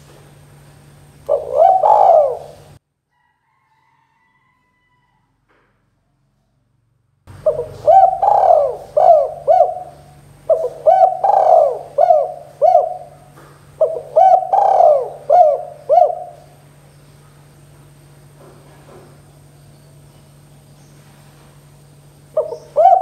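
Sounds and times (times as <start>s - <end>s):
low steady hum: 0.0s - 3.1s, 6.7s - 23.0s
dove cooing: 1.3s - 2.8s, 7.3s - 16.7s, 22.2s - 23.0s.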